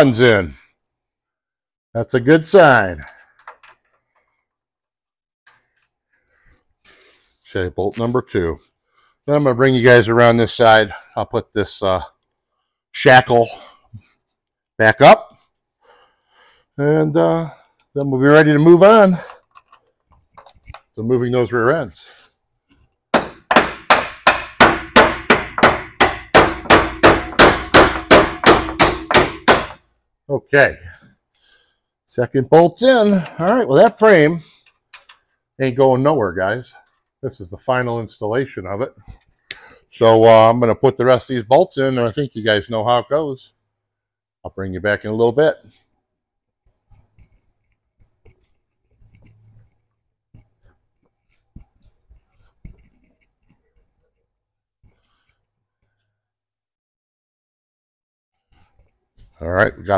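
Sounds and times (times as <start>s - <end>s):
hammer blows on steel: 23.2s - 29.8s.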